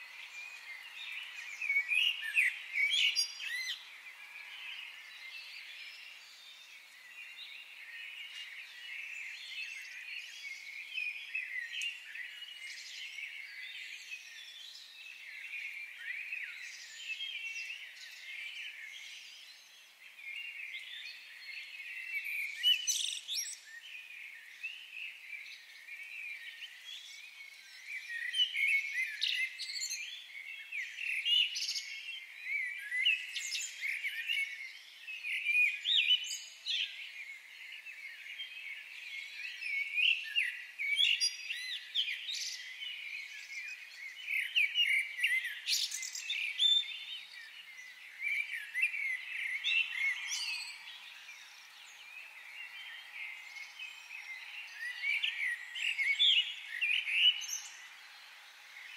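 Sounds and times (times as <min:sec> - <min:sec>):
birds chirping: 0:35.2 - 0:58.9.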